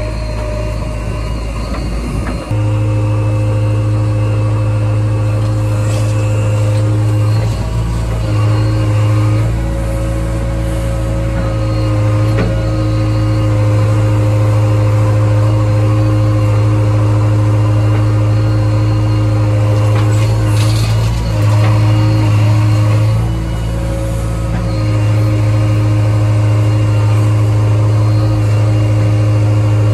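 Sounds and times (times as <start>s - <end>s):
diesel engine running: 0.0s - 29.9s.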